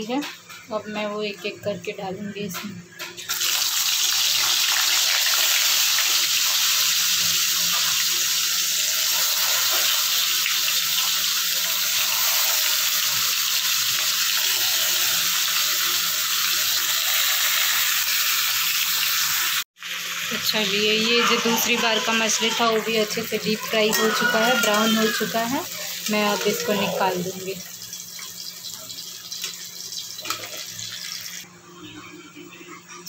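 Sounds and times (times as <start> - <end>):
fish deep-frying in oil: 3.2 - 21.4, 24.0 - 31.5.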